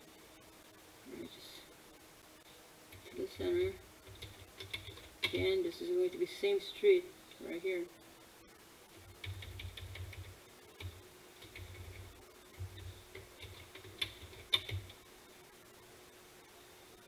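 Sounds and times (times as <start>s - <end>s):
faint steady hum: 0.0s - 17.0s
keyboard typing clicks: 2.9s - 5.5s, 9.1s - 15.0s.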